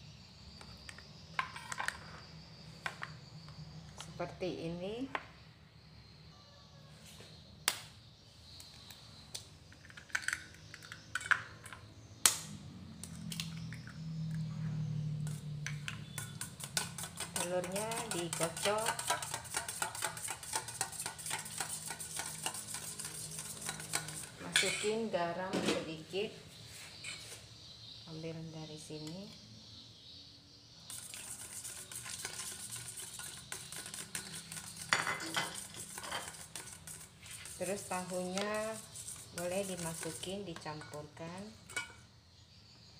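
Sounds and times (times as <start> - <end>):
spoon tapping eggshell and metal bowl: 15.2 - 25.0, 30.9 - 42.1.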